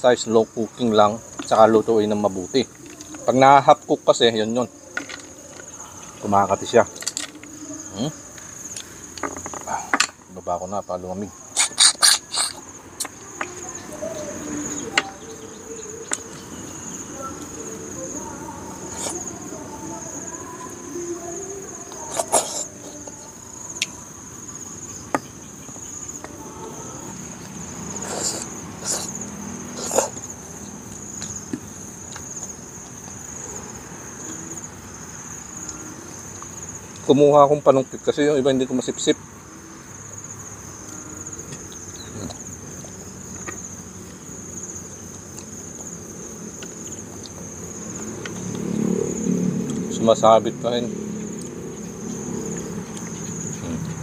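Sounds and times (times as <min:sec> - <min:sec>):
insect trill: 0:00.0 - 0:54.0
wet slurping of snails: 0:11.5 - 0:13.2, 0:18.8 - 0:19.3, 0:21.9 - 0:23.1, 0:27.8 - 0:30.4.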